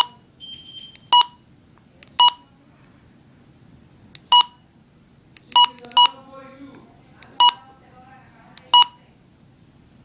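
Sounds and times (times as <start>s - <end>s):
keypad beeps: 0.0s - 1.4s, 2.2s - 2.4s, 4.3s - 4.6s, 5.5s - 6.2s, 7.4s - 7.6s, 8.7s - 9.0s.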